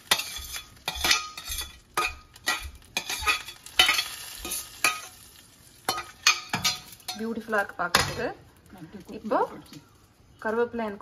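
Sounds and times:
metal spoon scraping a pan: 0.0 - 8.3
hot oil sizzling: 0.0 - 11.0.

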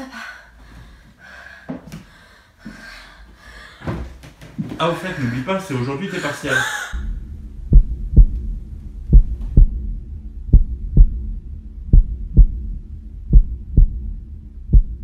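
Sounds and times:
low steady drone: 6.9 - 15.0
heartbeat double thumps: 7.0 - 15.0.

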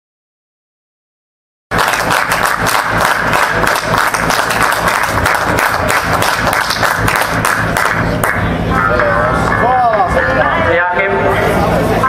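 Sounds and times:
crowd applauding: 1.7 - 8.4.

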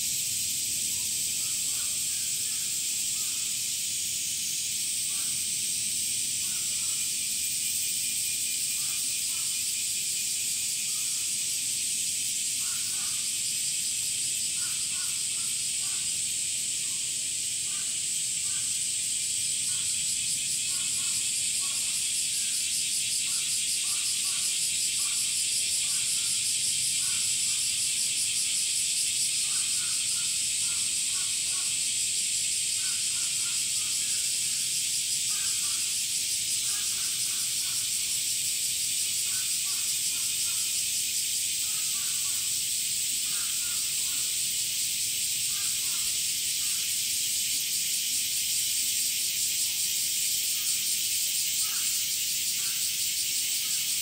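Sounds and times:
cicadas buzzing: 0.0 - 54.0.

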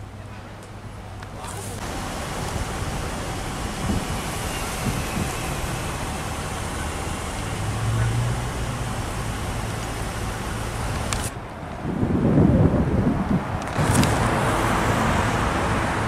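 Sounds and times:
car engines idling: 0.0 - 11.8
road and wind noise hiss: 0.0 - 16.0.

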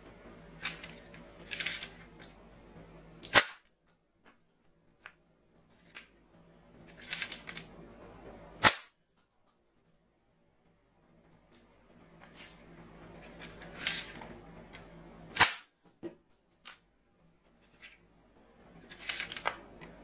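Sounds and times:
toy blaster shot snap: 3.2 - 3.7, 8.6 - 8.9, 15.3 - 15.7.

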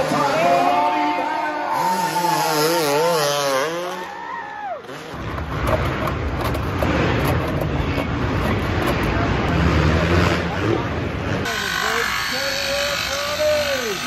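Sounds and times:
dirt bike engine revving: 0.0 - 4.2, 4.8 - 14.0
power saw cutting plastic: 11.4 - 14.0.

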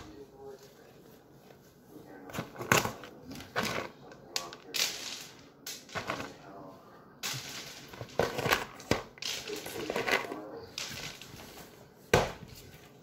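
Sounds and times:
treats clattering onto hard floor: 7.2 - 12.6.

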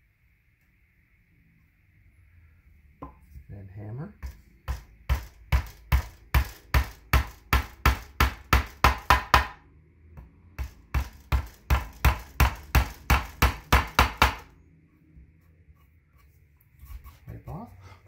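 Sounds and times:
hammer tapping nail into metal: 4.2 - 9.6, 10.2 - 14.5.

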